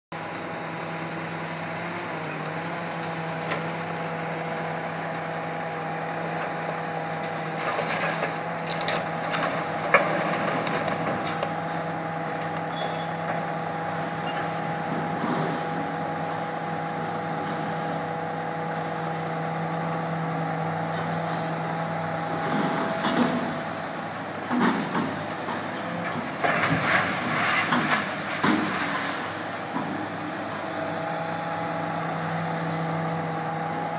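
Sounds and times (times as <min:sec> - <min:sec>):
excavator engine and hydraulics: 0:00.2 - 0:33.9
metal clanks and bangs: 0:24.6 - 0:29.9.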